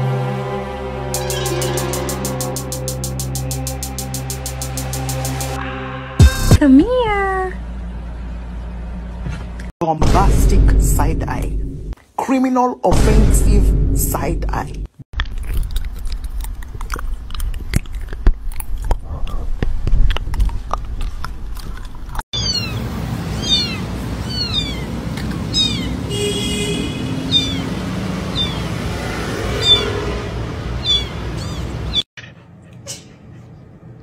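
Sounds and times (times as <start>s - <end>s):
newborn kitten mewing: 23.4s - 24.8s, 27.3s - 27.6s.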